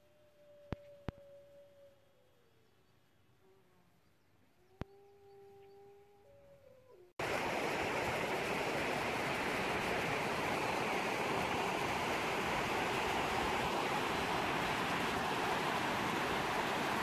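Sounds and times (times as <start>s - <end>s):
river rushing over rocks: 7.2s - 17.0s.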